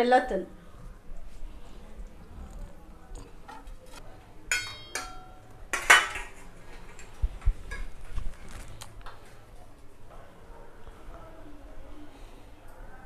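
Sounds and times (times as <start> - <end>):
ladle clinking on steel pot: 4.5 - 6.4.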